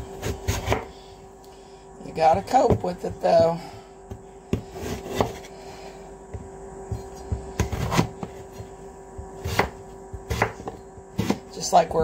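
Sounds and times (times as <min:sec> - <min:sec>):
steady background hum: 0:00.0 - 0:12.0
knife chopping on wooden board: 0:00.2 - 0:00.9, 0:02.4 - 0:05.5, 0:06.3 - 0:11.5.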